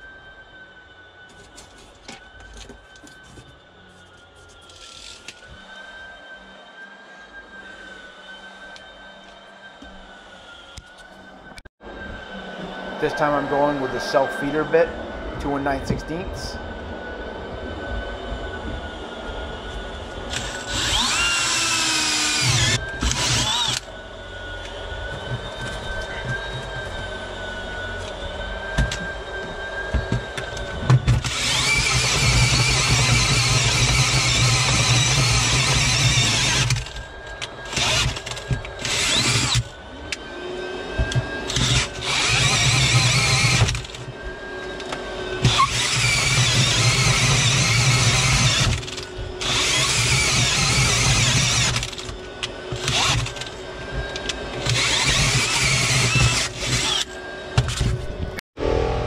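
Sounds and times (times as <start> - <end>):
cordless drill boring wood: 20.3 - 23.9, 30.1 - 37.0, 37.6 - 39.8, 41.0 - 44.0, 45.4 - 57.2.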